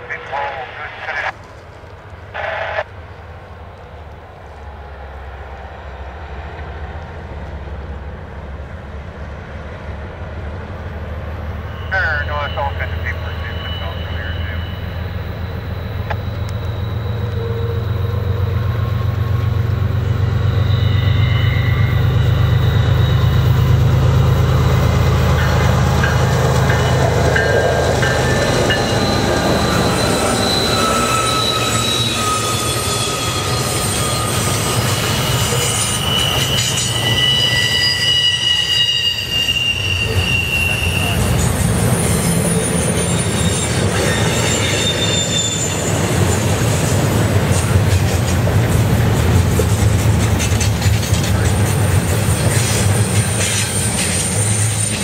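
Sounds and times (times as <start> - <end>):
diesel locomotive engine rumble: 0.0 - 55.0
train wheels squealing: 10.8 - 48.4, 49.1 - 55.0.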